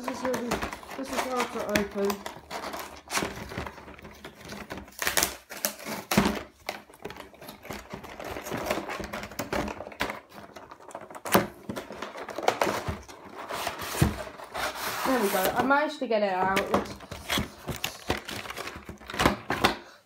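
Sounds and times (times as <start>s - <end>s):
cardboard box rustling and scraping: 12.4s - 15.8s.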